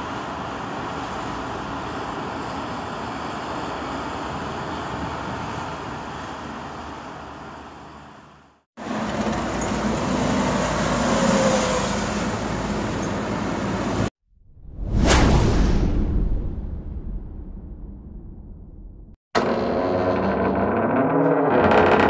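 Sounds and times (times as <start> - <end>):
loud rumbling noise: 14.3 - 22.0
low hum: 14.3 - 22.0.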